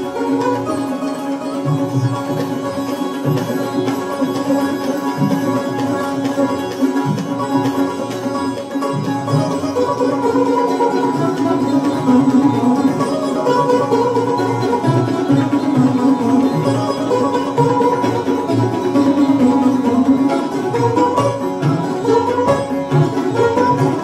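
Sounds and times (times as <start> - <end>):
sitar and sarod melody: 0.0 - 24.0
tabla strokes: 0.0 - 24.0.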